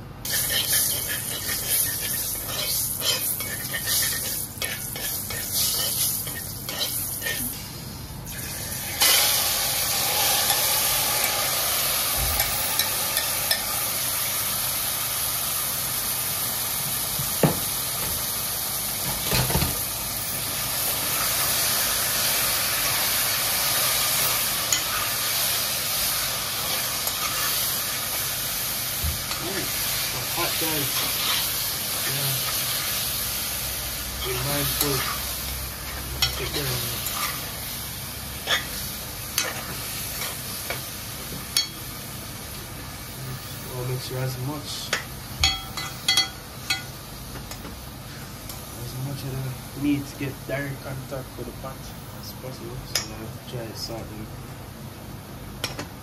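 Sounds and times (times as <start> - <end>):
meat sizzling in a pot: 0.0 - 56.0
spices frying in hot oil: 0.0 - 56.0.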